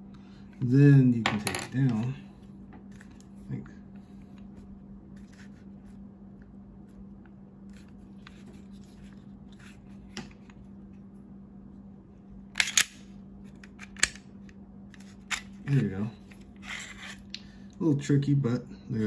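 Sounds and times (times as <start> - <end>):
steady low hum: 0.0 - 19.0
pistol parts clicking and scraping: 12.6 - 14.2, 14.9 - 15.8.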